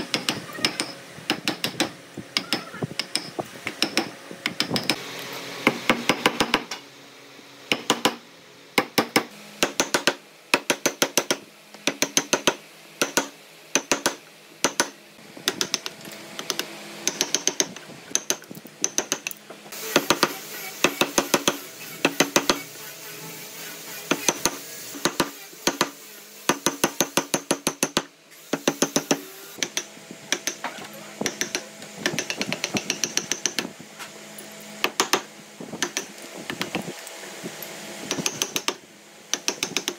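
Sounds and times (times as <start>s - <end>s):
chisel tapping wood: 31.2s - 33.7s.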